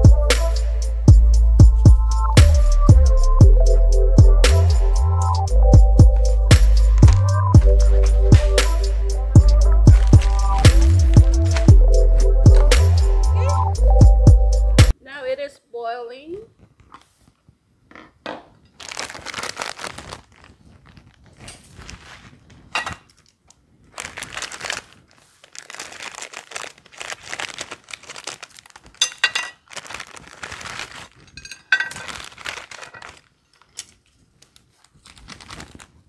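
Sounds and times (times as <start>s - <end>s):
plastic packet crinkling and tearing: 6.2s - 8.9s, 9.6s - 13.0s, 18.7s - 36.0s.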